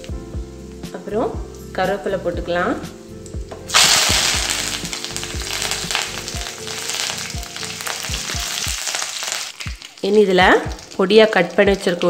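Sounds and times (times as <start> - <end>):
leaves sizzling in hot oil: 0.0 - 12.0
seeds popping and crackling: 3.7 - 12.0.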